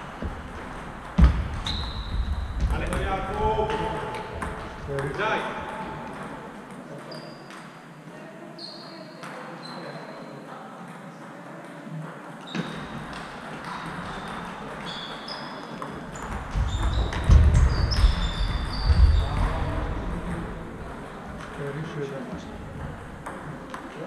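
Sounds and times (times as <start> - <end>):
low thumps of ball strikes: 0.2 - 5.1, 16.2 - 21.5
table tennis balls clicking: 0.3 - 7.8, 11.7 - 21.6, 22.7 - 24.0.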